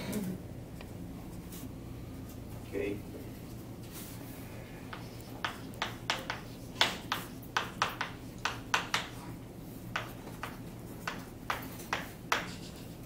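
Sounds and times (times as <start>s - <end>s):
chalk tapping on a blackboard: 4.9s - 9.3s, 9.9s - 13.0s.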